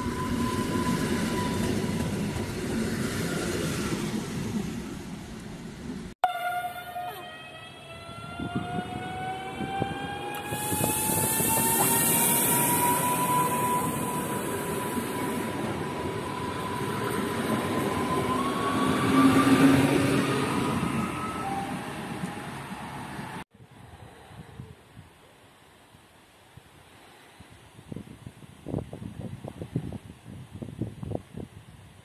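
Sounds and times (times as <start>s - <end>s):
electric train traction whine: 5.0s - 23.4s
high hiss: 10.4s - 15.1s.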